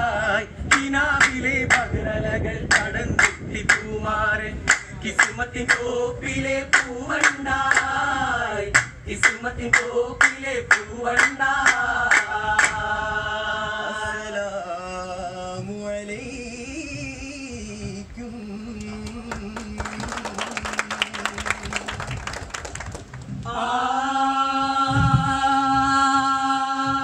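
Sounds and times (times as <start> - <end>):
men singing in chorus: 0.0 - 21.9, 23.5 - 27.0
rhythmic hand claps: 0.7 - 1.9, 2.7 - 3.9, 4.7 - 5.9, 6.7 - 8.0, 8.8 - 12.8, 18.8 - 23.4.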